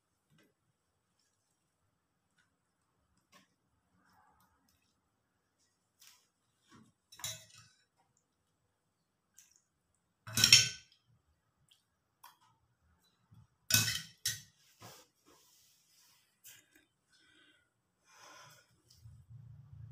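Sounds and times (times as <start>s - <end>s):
plates and spoon clinking: 13.7s - 14.6s.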